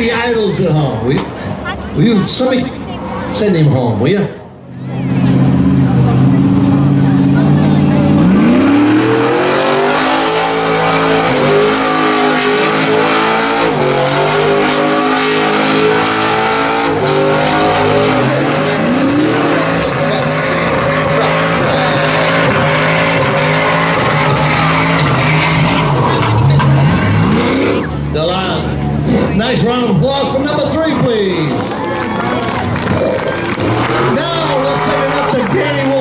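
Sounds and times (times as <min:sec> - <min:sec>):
pickup engine revving hard: 0:05.1 - 0:31.6, 0:32.4 - 0:36.0
tyres squealing on pavement: 0:08.4 - 0:28.0, 0:30.6 - 0:36.0.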